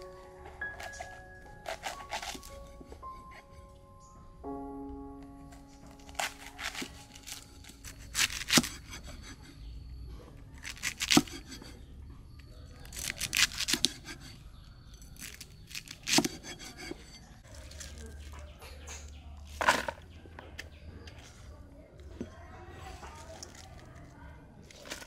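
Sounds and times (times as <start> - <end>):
cleaver chopping cabbage on wood: 0.8 - 2.8, 6.0 - 9.4, 10.6 - 11.8, 12.9 - 14.3, 15.2 - 17.1.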